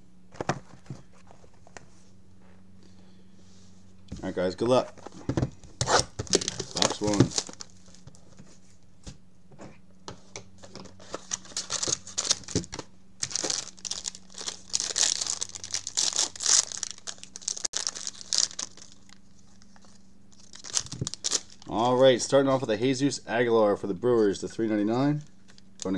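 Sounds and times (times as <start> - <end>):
card box rustles and clicks: 5.8 - 8.2, 10.6 - 21.6
foil pack crinkling: 5.8 - 8.2, 10.9 - 22.0.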